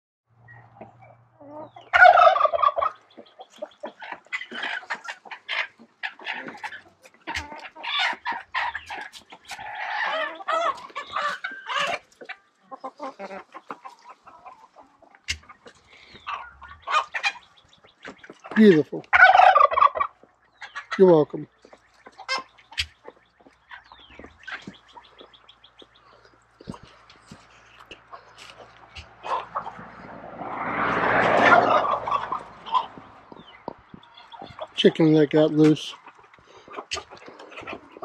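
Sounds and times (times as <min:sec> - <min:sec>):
chickens clucking: 0:00.4 - 0:38.0
turkey gobbling: 0:00.5 - 0:38.0.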